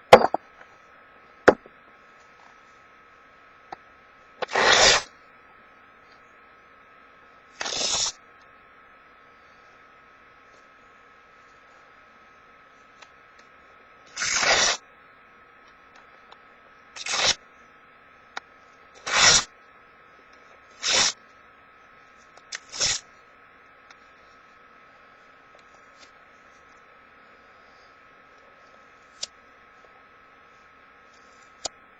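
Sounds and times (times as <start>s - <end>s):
paper tearing by hand: 4.4s - 5.1s, 7.6s - 8.2s, 14.2s - 14.8s, 17.0s - 17.4s, 19.0s - 19.5s, 20.8s - 21.2s, 22.6s - 23.0s.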